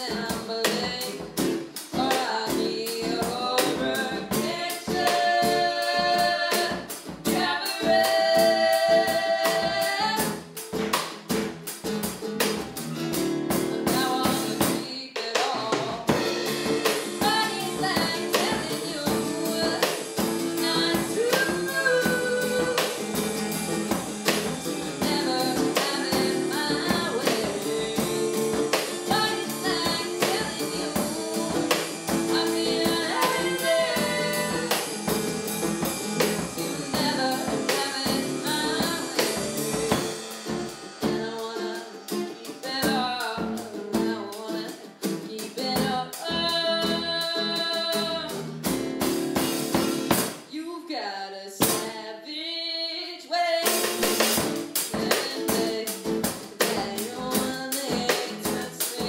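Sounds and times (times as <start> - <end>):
woman singing lead: 0.0 - 10.4, 13.3 - 48.5, 50.4 - 59.0
drum kit beat: 0.0 - 50.5, 51.6 - 52.0, 53.6 - 59.0
strummed acoustic guitar: 0.0 - 50.5, 51.6 - 52.0, 53.6 - 59.0
electric bass: 16.1 - 41.5.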